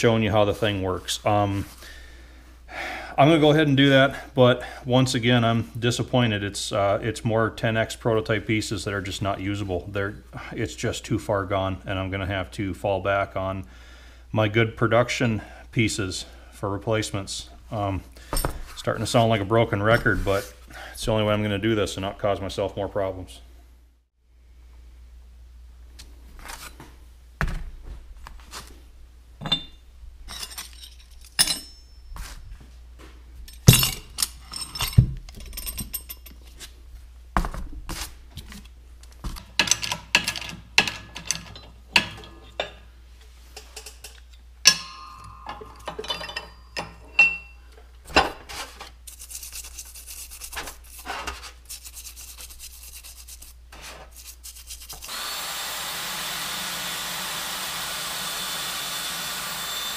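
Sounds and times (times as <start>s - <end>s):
metal parts clinking and knocking: 29.4s - 32.1s, 33.5s - 36.6s, 39.4s - 42.8s, 43.6s - 48.4s.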